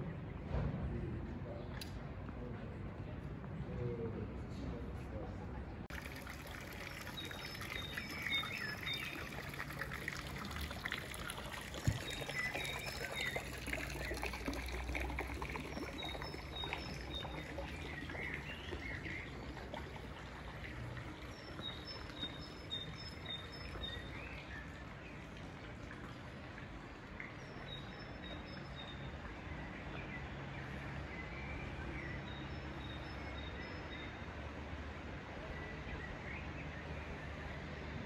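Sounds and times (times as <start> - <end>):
songbird singing: 5.9 - 25.4, 27.2 - 34.5
fountain water splashing: 5.9 - 31.2.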